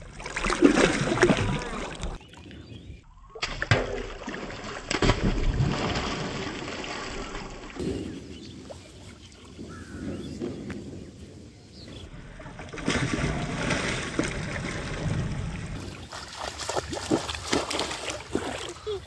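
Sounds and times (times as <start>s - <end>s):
person diving into water: 0.0s - 2.2s, 3.4s - 7.8s, 12.2s - 19.0s
fish thrashing in water: 3.4s - 7.8s, 12.5s - 19.0s.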